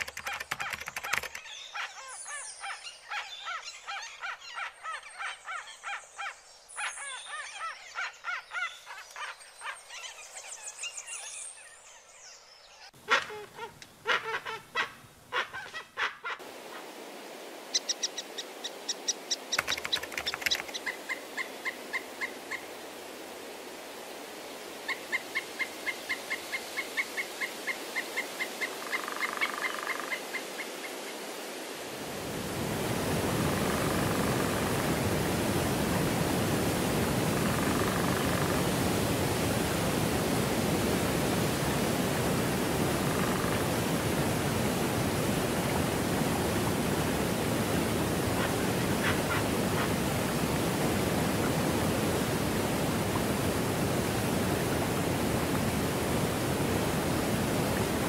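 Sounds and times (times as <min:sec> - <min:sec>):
birds chirping and trilling: 0:00.0 - 0:16.4
waterfall rushing: 0:31.2 - 0:58.0.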